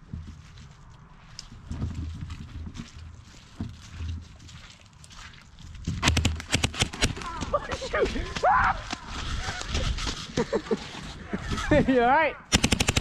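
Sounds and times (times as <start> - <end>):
footsteps crunching dry leaves: 0.0 - 6.0, 7.2 - 11.0.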